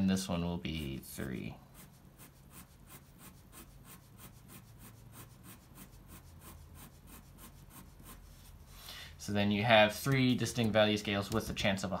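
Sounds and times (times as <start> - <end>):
pen scratching on paper: 0.7 - 8.7.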